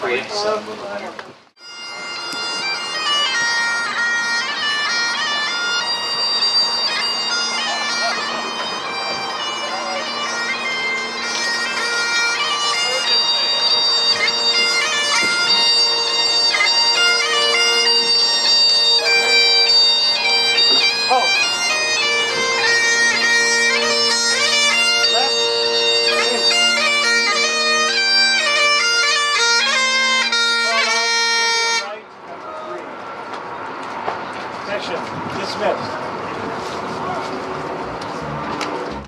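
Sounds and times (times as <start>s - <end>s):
bagpipes playing a tune: 1.6s - 32.0s.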